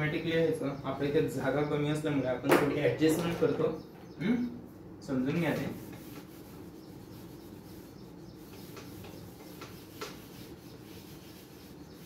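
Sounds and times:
duster rubbing whiteboard: 5.3s - 12.0s.

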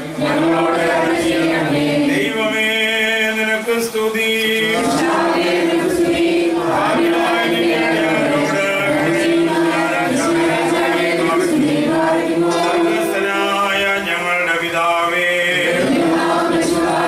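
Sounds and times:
congregation chanting a hymn: 0.0s - 17.0s.

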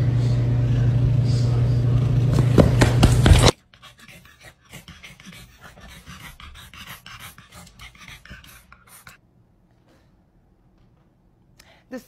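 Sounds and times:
dog panting: 3.1s - 9.2s.

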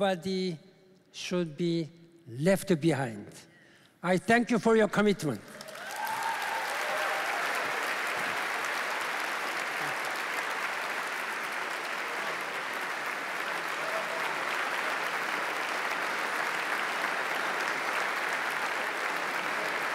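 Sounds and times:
audience applauding: 5.5s - 19.9s.

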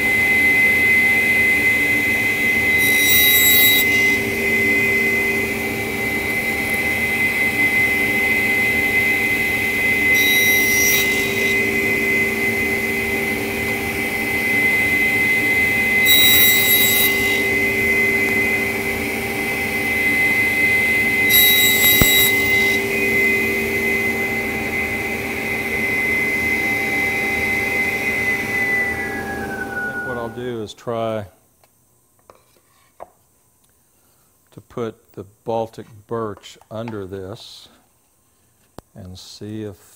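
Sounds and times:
table saw whine: 0.0s - 30.8s
saw blade winding down: 1.6s - 24.2s, 28.6s - 30.5s
saw blade cutting wood: 2.7s - 4.3s, 9.8s - 12.7s, 15.9s - 18.5s, 20.0s - 23.0s.

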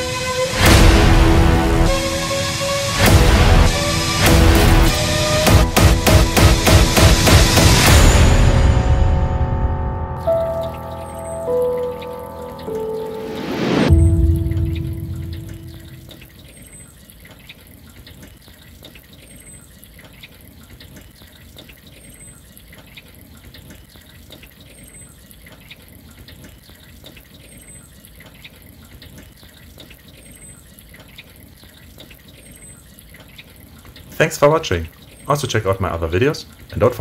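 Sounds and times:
water dripping onto soil: 15.4s - 37.0s.

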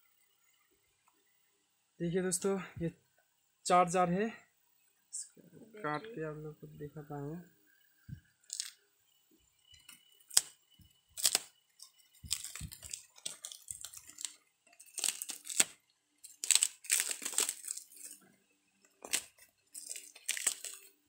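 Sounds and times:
plastic wrap crinkling and tearing: 8.4s - 8.8s, 9.8s - 18.2s, 18.9s - 21.0s.

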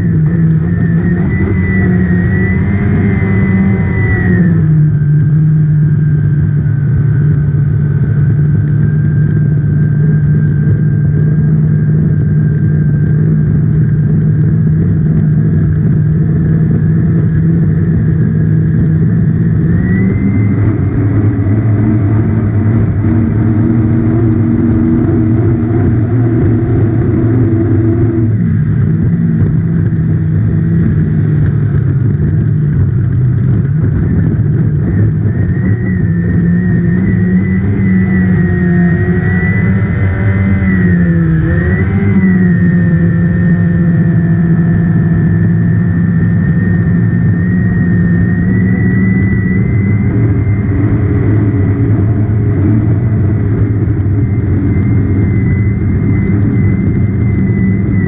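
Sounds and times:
boat engine running hard: 0.0s - 58.0s.

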